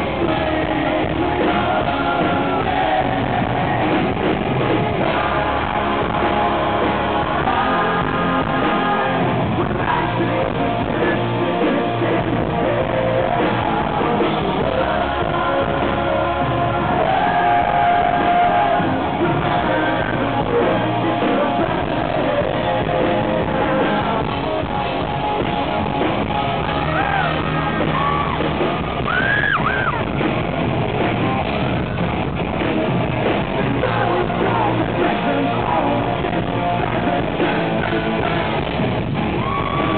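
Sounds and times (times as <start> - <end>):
man singing and shouting: 0.0 - 24.4, 33.4 - 38.6
live rock band: 0.0 - 39.9.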